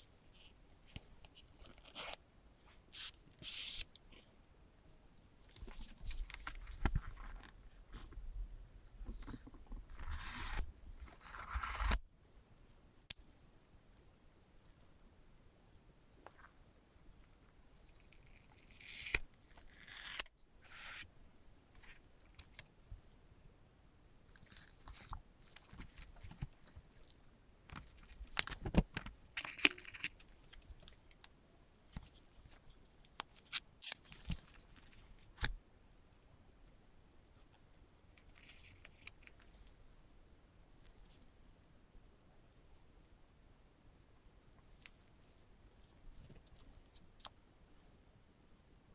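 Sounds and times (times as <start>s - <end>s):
paper tear strip ripping: 11.2s - 12.0s, 18.0s - 20.9s.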